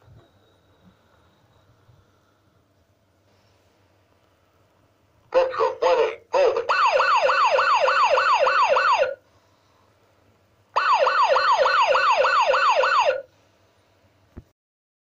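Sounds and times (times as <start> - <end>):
toy electronic siren: 6.5 - 9.2, 10.8 - 13.3.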